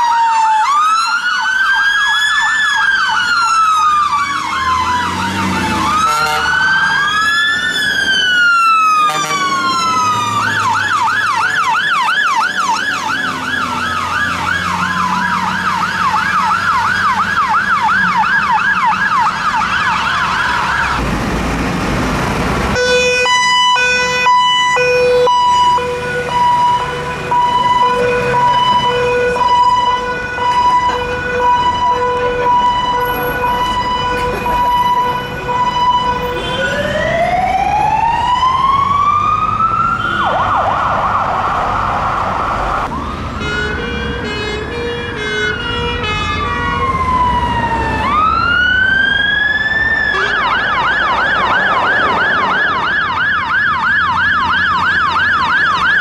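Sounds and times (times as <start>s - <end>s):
siren yelping sweeps: 0.0s - 21.0s, 22.8s - 43.2s, 46.7s - 56.0s
siren wailing: 0.0s - 21.1s, 22.8s - 43.9s, 45.5s - 56.0s
two-tone horn: 6.0s - 6.7s, 9.1s - 9.6s, 22.8s - 23.3s, 50.1s - 50.7s.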